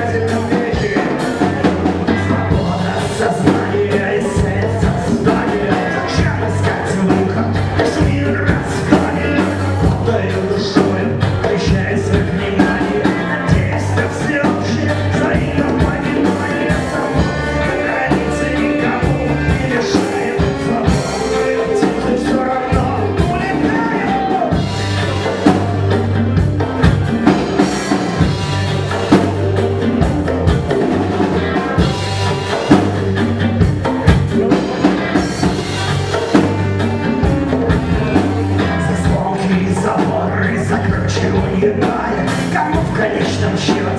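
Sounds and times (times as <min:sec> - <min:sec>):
man singing into microphone: 0:00.0 - 0:24.7, 0:38.6 - 0:43.9
drum kit: 0:00.0 - 0:43.9
electric guitar: 0:00.0 - 0:43.9.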